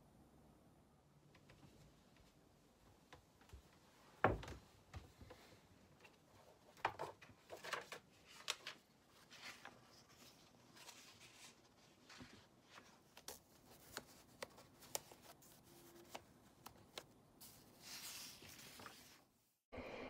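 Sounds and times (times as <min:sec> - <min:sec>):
paper pages rustling: 0:06.8 - 0:19.3.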